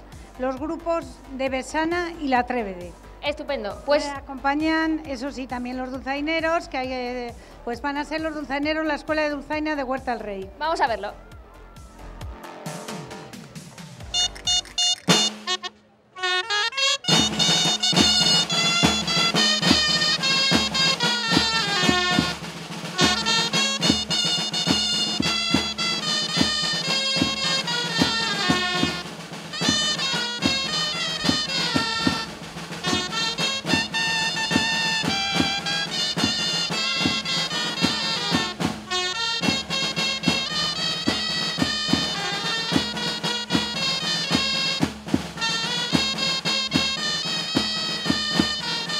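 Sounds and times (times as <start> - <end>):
steady drum beat: 0.0 - 15.7, 17.1 - 48.9
double-reed shawms playing melody: 14.1 - 48.9.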